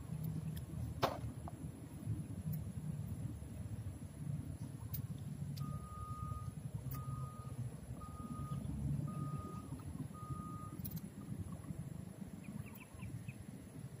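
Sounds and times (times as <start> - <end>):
vehicle reversing alarm beeping: 5.5 - 11.0.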